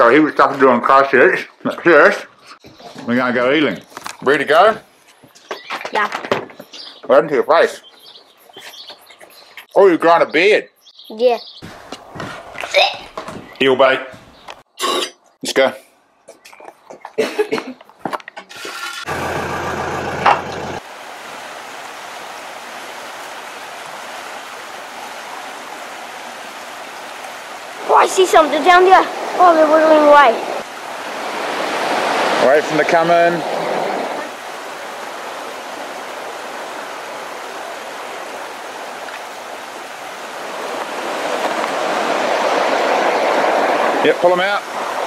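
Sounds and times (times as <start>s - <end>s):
stream water running over rocks: 20.8s - 45.0s.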